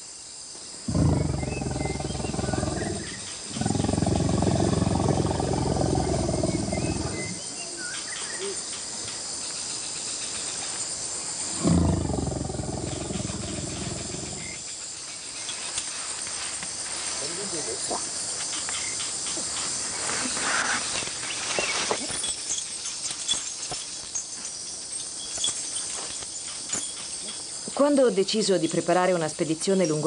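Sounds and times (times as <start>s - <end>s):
insects trilling: 0.0s - 30.0s
elephant rumbling and growling: 0.8s - 7.6s, 11.5s - 14.6s.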